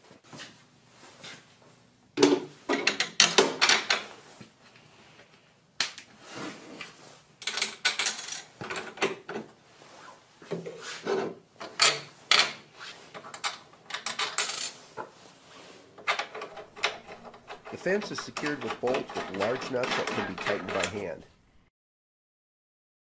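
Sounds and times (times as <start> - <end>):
clinks and knocks of hard parts: 2.2 - 4.0, 7.4 - 9.4, 11.6 - 12.6, 13.2 - 14.8, 16.0 - 21.1.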